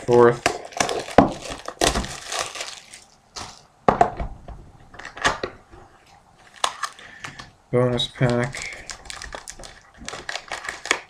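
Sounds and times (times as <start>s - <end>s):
plastic shrink-wrap crinkling and tearing: 0.0s - 3.7s, 6.4s - 7.4s, 8.0s - 11.0s.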